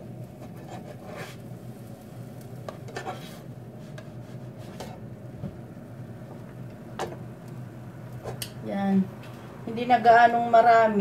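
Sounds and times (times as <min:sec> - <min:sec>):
faint sizzle: 0:00.0 - 0:11.0
steady low hum: 0:00.0 - 0:11.0
spatula scraping frying pan: 0:00.4 - 0:01.5, 0:02.7 - 0:05.1.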